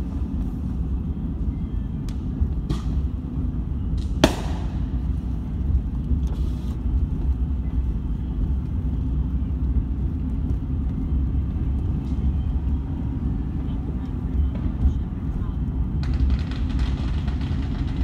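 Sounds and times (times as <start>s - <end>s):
car driving rumble from inside: 0.0s - 18.0s
firework bang: 4.2s - 5.0s.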